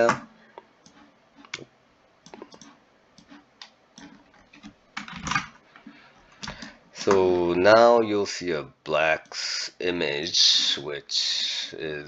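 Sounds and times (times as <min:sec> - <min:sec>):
computer mouse and keyboard clicks: 0:00.8 - 0:06.7.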